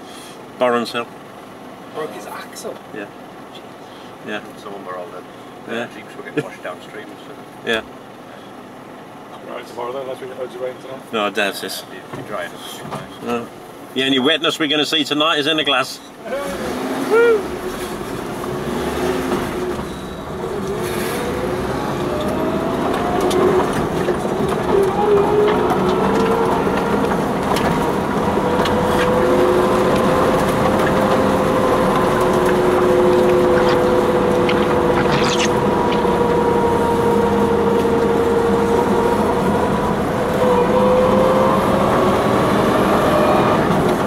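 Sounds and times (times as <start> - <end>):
car engine accelerating: 16.3 - 44.0.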